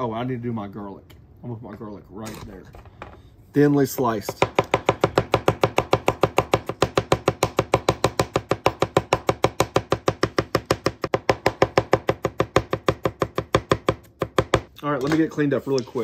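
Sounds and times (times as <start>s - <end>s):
knife chopping on cutting board: 4.3s - 14.7s.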